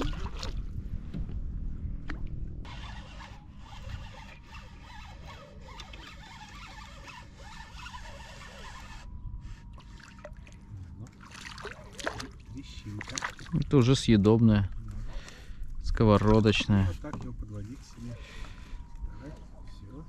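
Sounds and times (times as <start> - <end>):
low rumble: 0.0 - 2.7
fishing reel whirring: 2.7 - 9.6.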